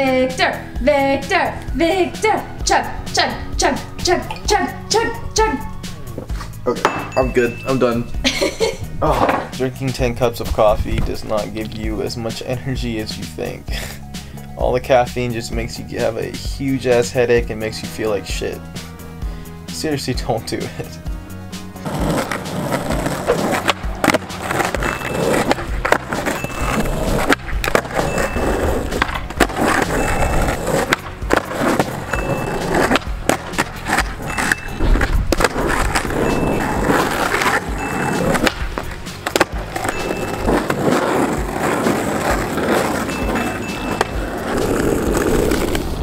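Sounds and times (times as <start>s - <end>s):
music: 0.0s - 46.0s
skateboard wheels rolling on asphalt: 21.6s - 46.0s
skateboard clacking: 21.8s - 46.0s.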